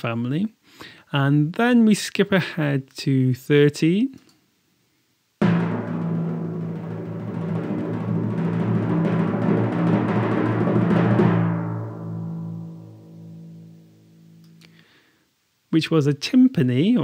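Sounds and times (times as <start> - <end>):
timpani roll: 5.4 - 13.7.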